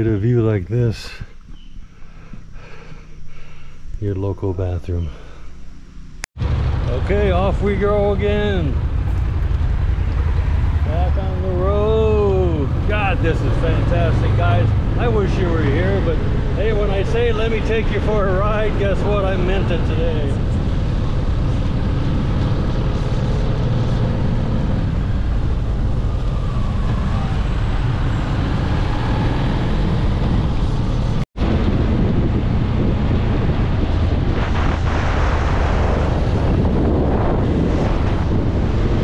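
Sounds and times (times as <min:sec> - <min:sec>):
motorcycle engine running: 0:05.7 - 0:13.9
wind rush on microphone: 0:06.4 - 0:39.0.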